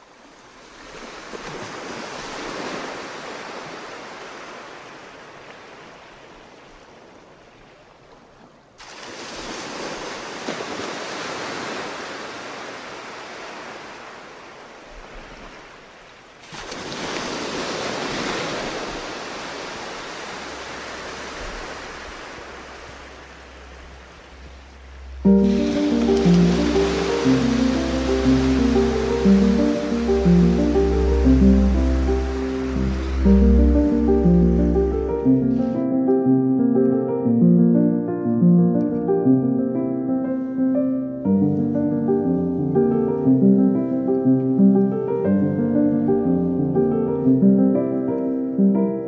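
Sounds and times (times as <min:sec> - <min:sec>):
sea waves breaking: 0:00.0 - 0:37.1.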